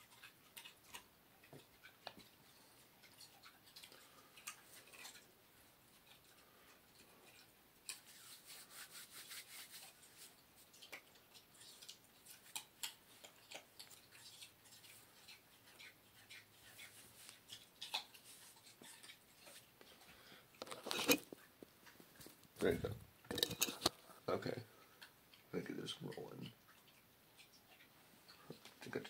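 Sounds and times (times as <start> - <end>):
hands handling cables and gear: 20.6 - 21.4, 22.2 - 24.0.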